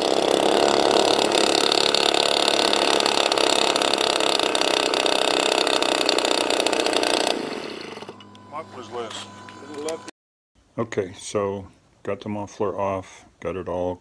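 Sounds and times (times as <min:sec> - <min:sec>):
model plane engines idling: 0:00.0 - 0:10.1.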